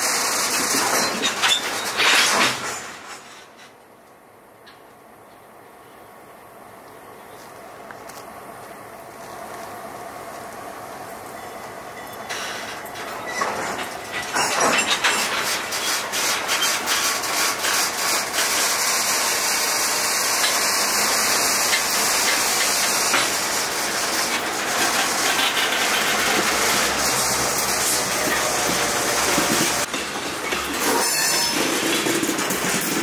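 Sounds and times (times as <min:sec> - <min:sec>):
freight cars rolling on rails: 0:00.0 - 0:33.0
clicks and clanks: 0:00.4 - 0:03.9, 0:12.1 - 0:18.7.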